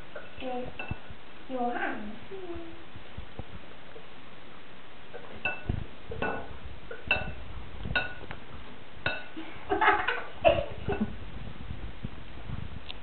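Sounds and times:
spatula knocking glass bowl: 5.5s - 7.4s, 8.0s - 8.2s.

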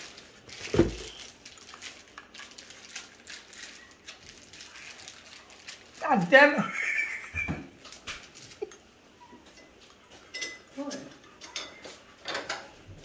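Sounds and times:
paper towel crumpling: 0.0s - 8.7s.

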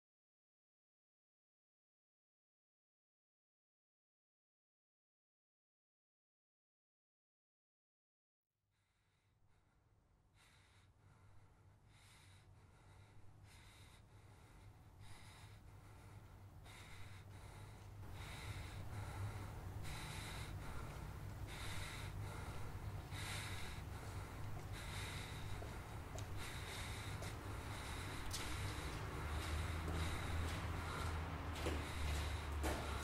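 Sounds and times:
low steady hum: 9.5s - 33.0s
man panting: 10.4s - 33.0s.

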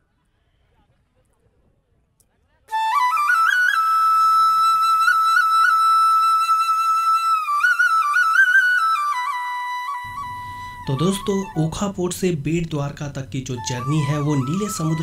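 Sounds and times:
solo flute melody: 2.7s - 12.0s, 13.5s - 15.0s.

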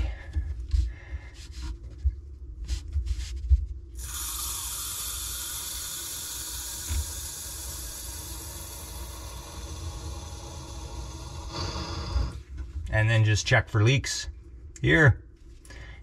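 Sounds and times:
water hissing into pipe: 4.0s - 12.4s.

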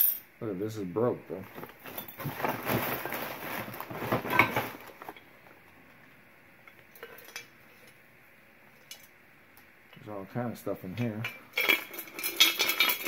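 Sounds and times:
glassware clinking in a box: 11.2s - 13.0s.

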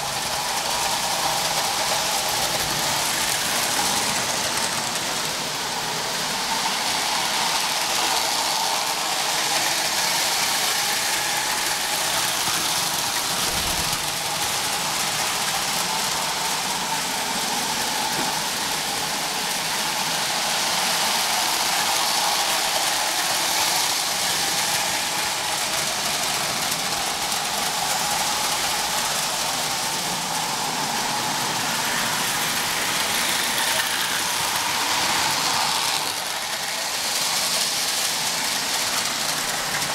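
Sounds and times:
toy train motors whirring: 0.0s - 39.9s
wheels rumbling on rails: 10.3s - 19.2s.

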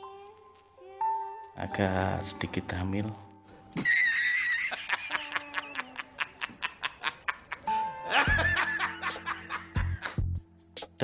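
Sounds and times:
man laughing hard: 3.8s - 10.2s.

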